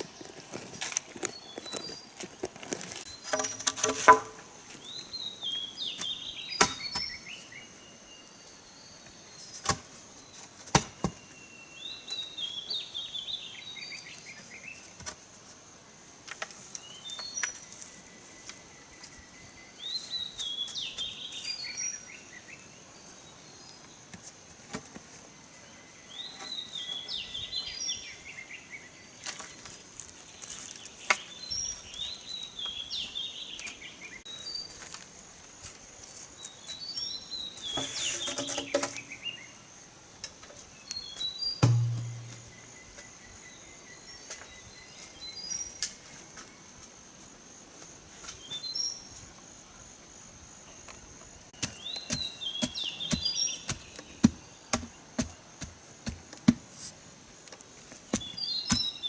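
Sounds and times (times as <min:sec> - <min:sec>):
bird chirping song: 0:01.1 - 0:15.0, 0:16.7 - 0:24.2, 0:25.3 - 0:34.8, 0:36.3 - 0:39.8, 0:40.5 - 0:46.7, 0:48.2 - 0:49.9, 0:50.5 - 0:56.2, 0:57.9 - 0:59.0
bamboo poles knocking: 0:03.2 - 0:04.5, 0:41.6 - 0:42.5.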